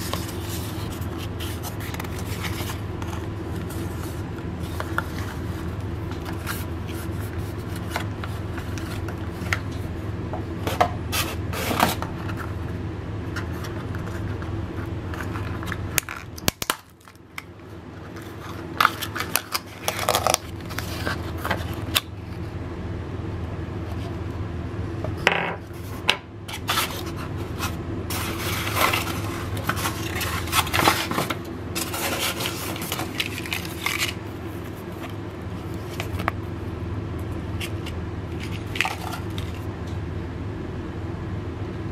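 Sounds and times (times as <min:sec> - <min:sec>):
steady low hum: 0:00.0 - 0:41.9
plastic crinkling: 0:18.1 - 0:22.1, 0:26.5 - 0:36.3
cardboard and foam scraping: 0:25.8 - 0:36.2.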